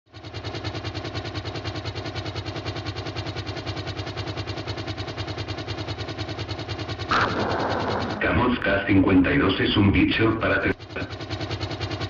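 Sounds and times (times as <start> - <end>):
helicopter rotors beating: 0.1 - 12.0
turbine engines: 0.1 - 12.0.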